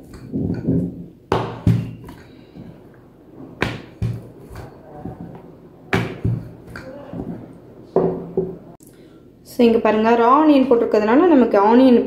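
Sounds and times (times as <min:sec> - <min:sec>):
rolling pin knocking board: 0:00.0 - 0:02.2, 0:03.6 - 0:07.4
rolling pin rolling dough: 0:00.0 - 0:08.5.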